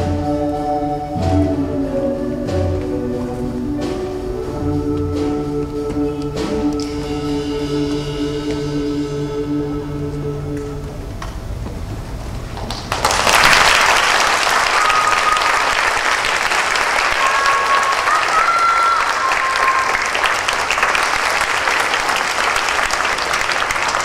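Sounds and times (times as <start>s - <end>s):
music: 0.0s - 11.6s
audience applause: 12.6s - 24.0s.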